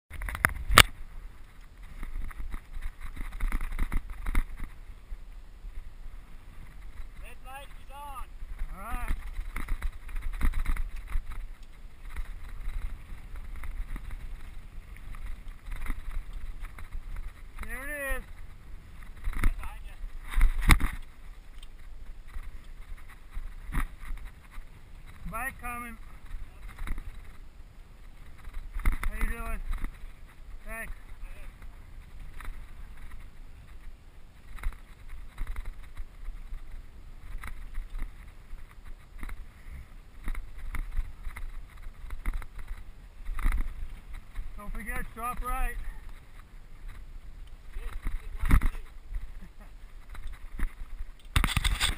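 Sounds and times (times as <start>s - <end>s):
bike rattling over rocks: 0.1s - 51.9s
wind rumbling on microphone: 0.1s - 51.9s.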